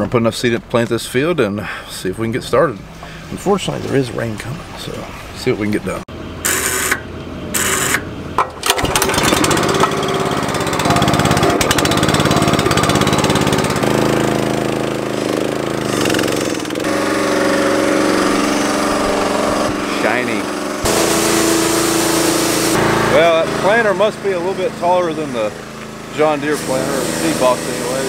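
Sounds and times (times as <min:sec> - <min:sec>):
small gasoline engine running: 0:06.4 - 0:28.0.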